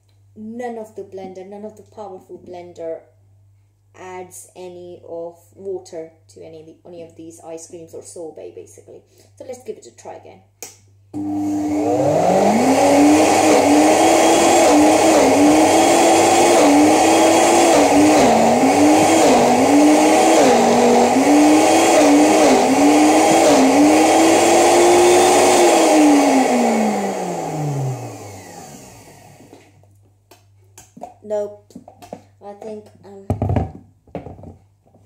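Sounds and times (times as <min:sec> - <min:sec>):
blender motor running: 0:11.2 - 0:29.6.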